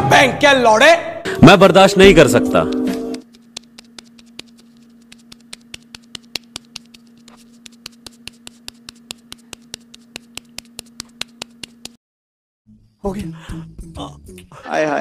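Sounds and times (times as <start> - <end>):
rapid even clicking: 3.2 - 12.0.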